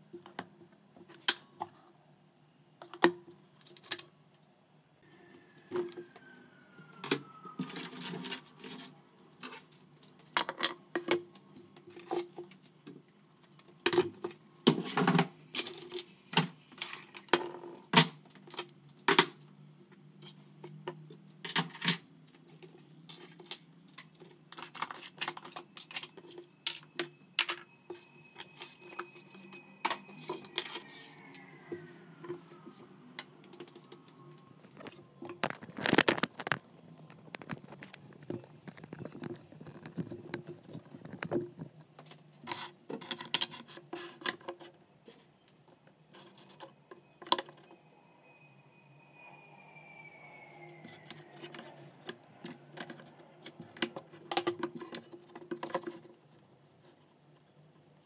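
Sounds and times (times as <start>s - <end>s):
faint thin gliding tone: 46.7s - 52.7s.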